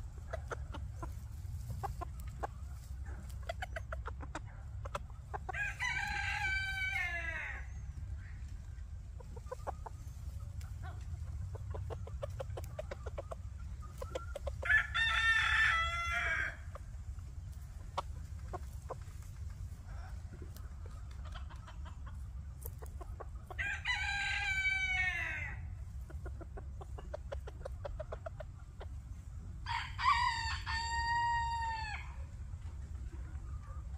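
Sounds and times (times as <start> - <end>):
steady low rumble: 0.0 - 5.6, 7.6 - 15.0, 15.9 - 23.6
rooster crowing: 5.5 - 7.7, 14.6 - 16.6, 23.5 - 25.6, 29.6 - 32.2.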